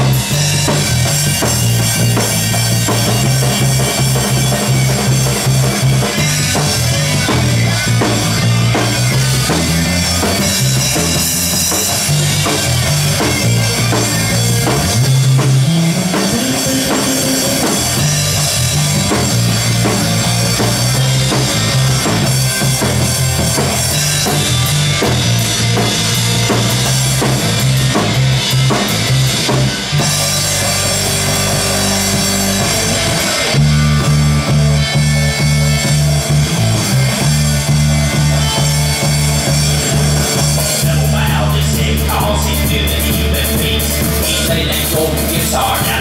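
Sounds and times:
electric bass notes: 0.0 - 46.0
rock band playing: 0.0 - 46.0.

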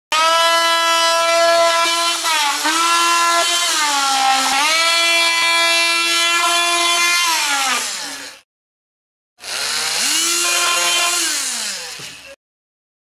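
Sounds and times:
oscillating multi-tool whining: 9.4 - 12.4.

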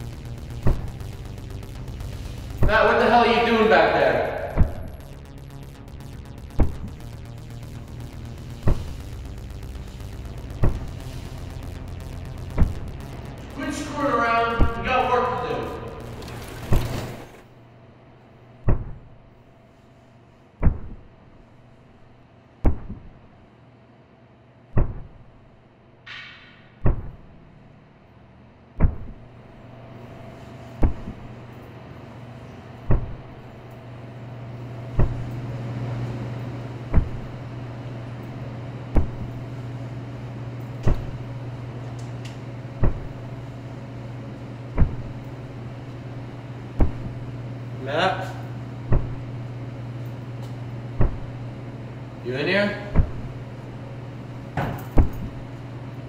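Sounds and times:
sharp hit with decaying boom: 0.0 - 17.3, 26.1 - 27.4
low steady hum: 0.0 - 56.0.

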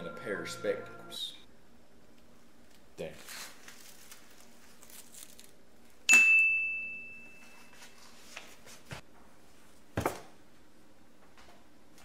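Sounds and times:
high bell-like ding: 0.0 - 1.4, 6.1 - 7.8.

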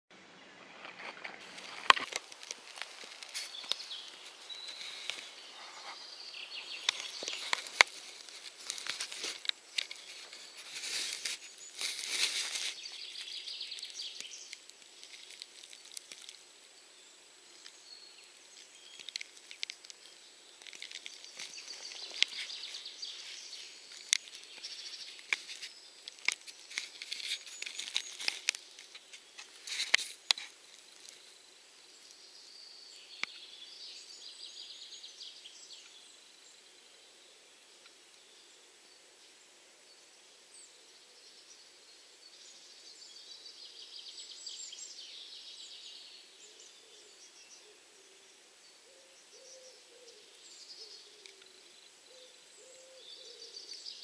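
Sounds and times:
light hiss: 0.9 - 54.0
soil crumbs ticking and crackling: 1.2 - 32.3.

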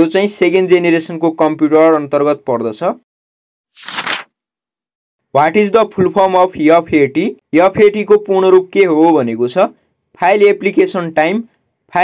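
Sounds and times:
papery page-turn swoosh: 3.7 - 4.3.

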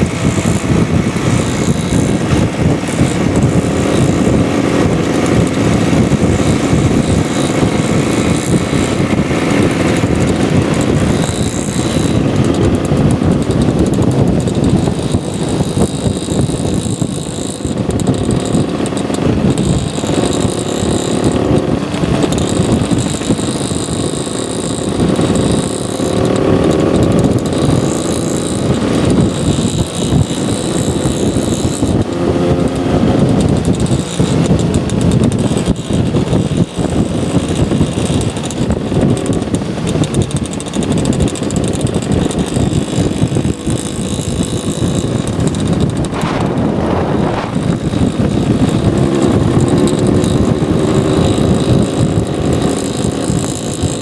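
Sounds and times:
motor scooter engines running: 0.0 - 54.0
wind buffeting on microphone: 0.0 - 54.0.

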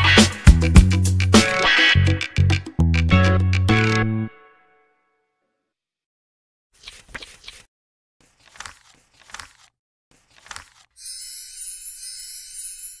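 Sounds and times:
bright high glittering chime: 11.0 - 13.0.

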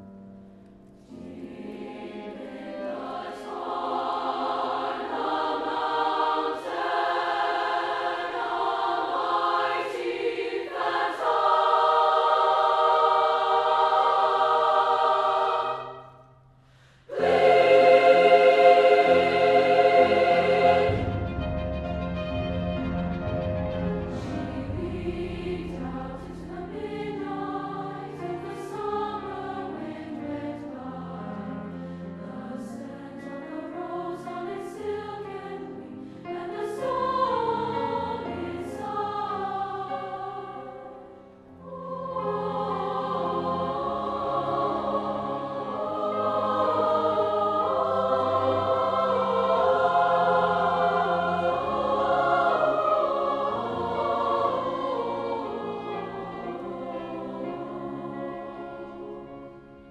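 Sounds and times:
choir singing: 0.0 - 59.9
violin and cello: 48.0 - 59.9.

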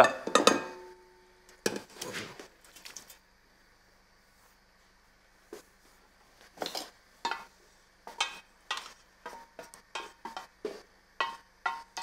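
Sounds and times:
wooden spoon scraping: 5.6 - 12.0.

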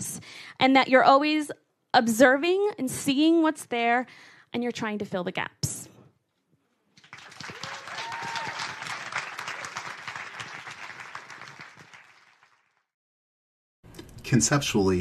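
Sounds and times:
audience applauding: 7.0 - 12.9
brief cheer: 7.4 - 11.6.

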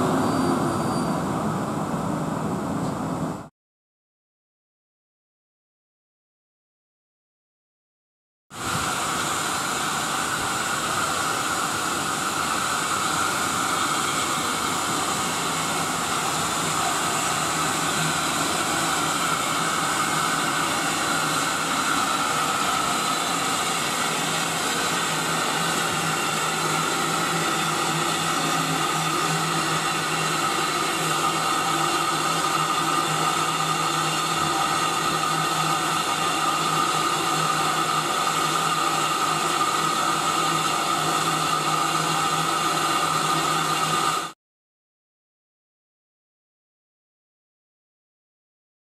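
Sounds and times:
steam locomotive blowing off steam: 0.0 - 2.0, 8.5 - 44.4.

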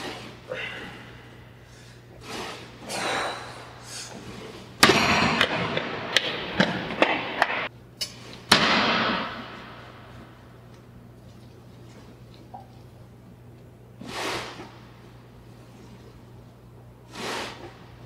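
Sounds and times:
man breathing heavily: 0.0 - 4.4.

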